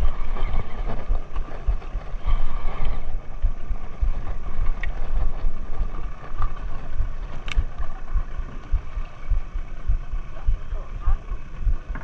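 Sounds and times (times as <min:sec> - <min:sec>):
faint steady hum: 0:00.0 - 0:12.0
wind buffeting microphone: 0:00.0 - 0:12.0
light clicks: 0:07.4 - 0:07.8.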